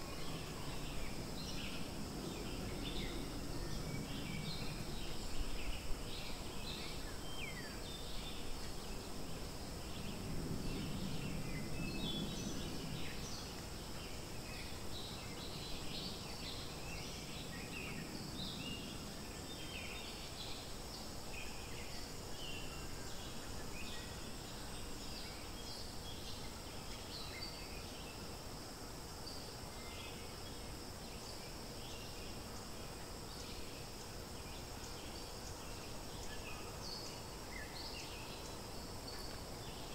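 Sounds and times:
high insect hum: 0.0 - 39.9.

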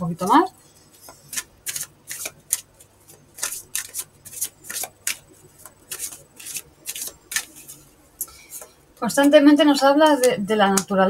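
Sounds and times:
cards being shuffled: 1.0 - 7.8.

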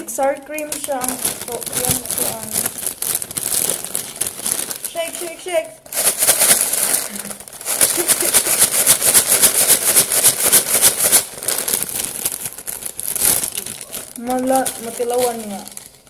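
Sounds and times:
paper bag rustling: 0.0 - 16.0.

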